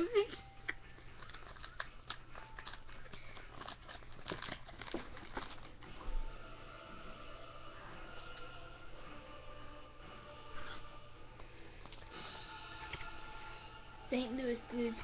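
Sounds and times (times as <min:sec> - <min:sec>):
cards clicking and crinkling: 0:00.7 - 0:05.9.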